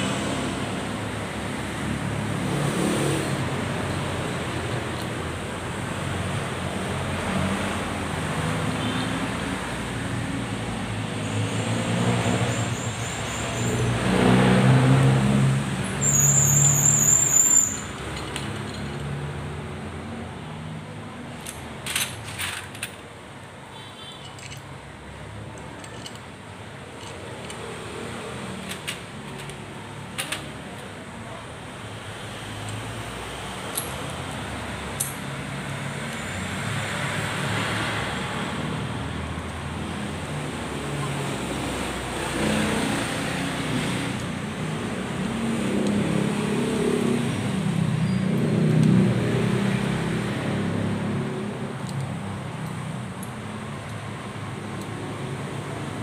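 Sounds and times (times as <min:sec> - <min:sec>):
background traffic noise: 0:00.0 - 0:56.0
light metallic clicks of tools: 0:24.1 - 0:24.8, 0:25.5 - 0:27.9, 0:32.6 - 0:33.0, 0:33.6 - 0:35.3, 0:51.8 - 0:55.0.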